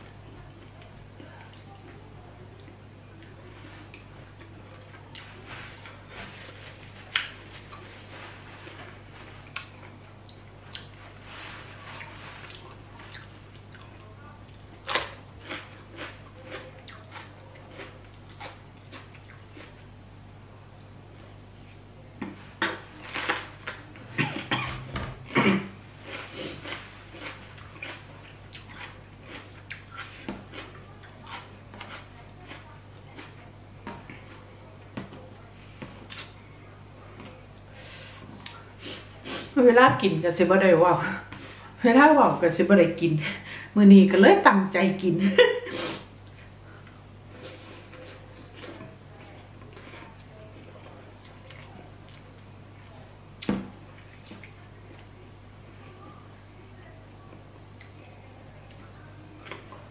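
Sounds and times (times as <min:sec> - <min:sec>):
person chewing food: 0:02.6 - 0:20.1, 0:20.8 - 0:35.2, 0:46.2 - 0:52.4.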